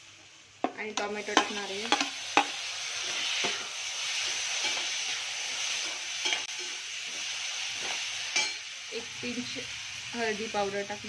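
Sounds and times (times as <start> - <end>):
vegetables sizzling in oil: 0.0 - 11.0
metal spatula scraping pan: 1.3 - 7.2.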